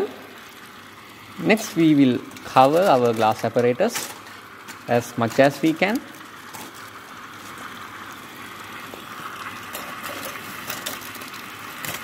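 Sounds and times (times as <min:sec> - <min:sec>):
aluminium foil crinkling: 0:01.4 - 0:08.1, 0:09.3 - 0:12.0
tap water rushing into sink: 0:04.7 - 0:12.0.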